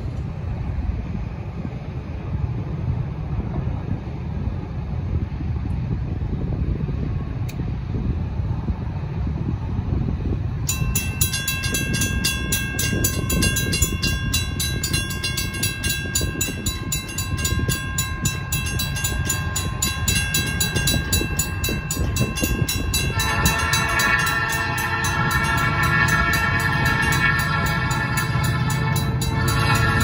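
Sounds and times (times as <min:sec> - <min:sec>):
diesel locomotives approaching: 0:00.0 - 0:30.0
fast high ringing: 0:10.6 - 0:30.0
train horn: 0:22.0 - 0:30.0.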